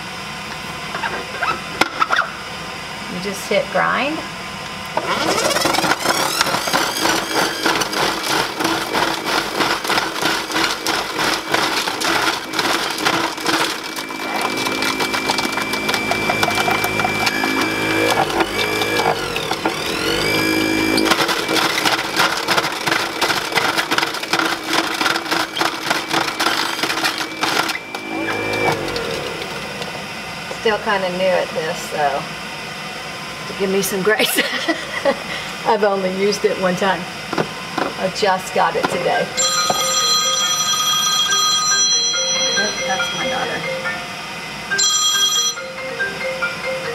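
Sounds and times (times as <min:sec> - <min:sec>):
whine with shifting pitch: 0:04.6 - 0:33.3
juicer grinder clattering: 0:04.9 - 0:30.6, 0:37.2 - 0:43.6.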